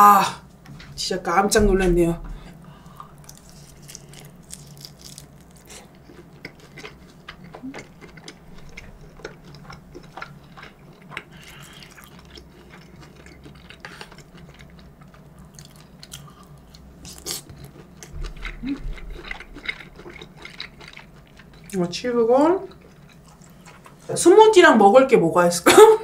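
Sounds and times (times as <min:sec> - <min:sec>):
person chewing: 0:02.8 - 0:21.8, 0:22.6 - 0:24.1.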